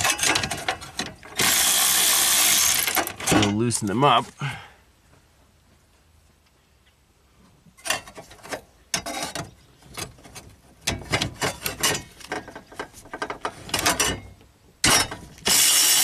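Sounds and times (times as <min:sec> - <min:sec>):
cordless electric ratchet bursts: 0:01.4 - 0:03.1, 0:15.4 - 0:16.0.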